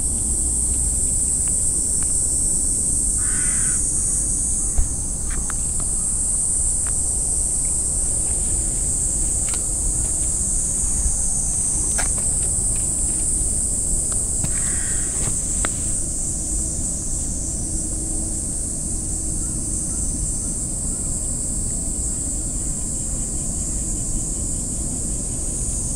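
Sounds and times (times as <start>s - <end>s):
high-pitched insect drone: 0.0s - 25.9s
soft thump: 4.7s - 5.0s.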